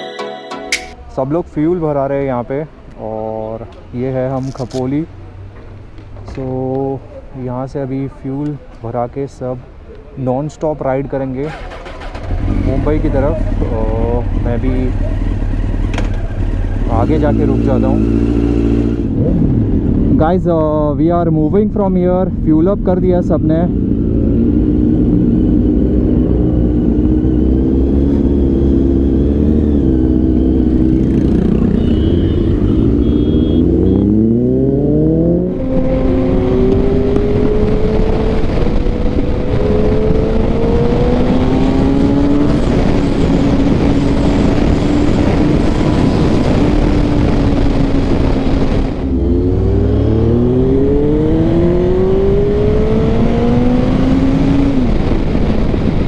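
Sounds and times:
motorcycle engine accelerating: 11.4s - 20.2s, 23.7s - 56.0s
wind rush over microphone: 18.8s - 21.2s, 34.6s - 56.0s.

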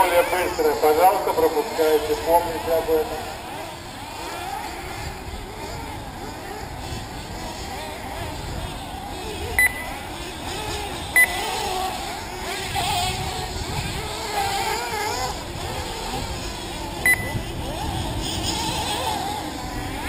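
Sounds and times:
model car engines revving: 0.0s - 20.0s
short electronic beeps: 9.6s - 10.0s, 11.2s - 11.4s, 17.0s - 17.4s.

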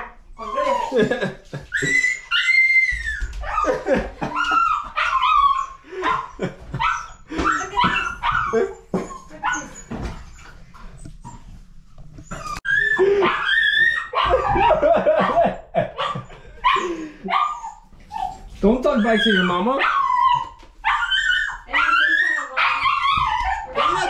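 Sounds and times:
puppy whining and yipping: 0.4s - 1.0s, 1.7s - 11.6s, 12.2s - 14.8s, 16.0s - 24.0s.

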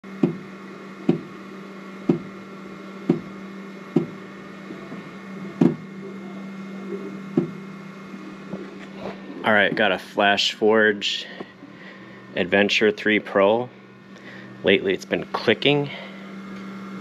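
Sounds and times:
printer humming: 0.0s - 17.0s.

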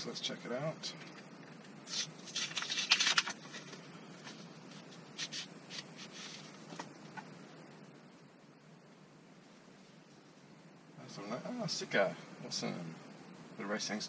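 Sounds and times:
cardboard packaging rustling: 1.9s - 6.8s.

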